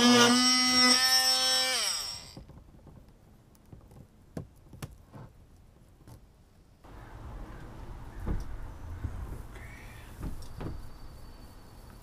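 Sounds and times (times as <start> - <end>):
cordless drill on sheet metal: 0.0 - 2.4
drill motor winding down: 0.0 - 2.4.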